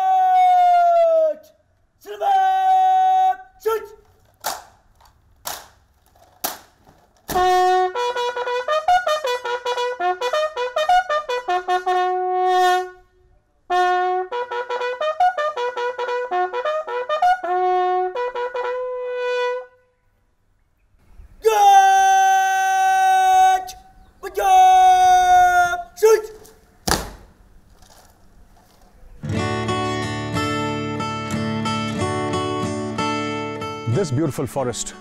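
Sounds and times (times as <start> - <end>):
bugle call: 7.3 - 13.1, 13.7 - 20.1, 21.4 - 26.6
sharp knock: 26.8 - 27.4.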